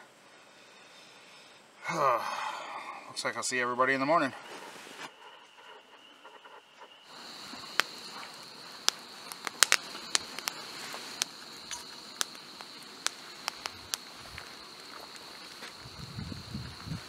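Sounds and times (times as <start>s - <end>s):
camping stove hissing: 4.0s - 17.0s
sharp clicks and pops: 7.1s - 16.0s
water boiling in a pot: 7.1s - 17.0s.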